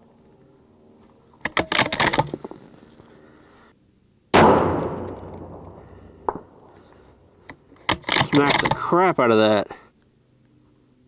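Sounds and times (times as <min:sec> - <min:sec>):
rifle shot: 0:04.3 - 0:06.7.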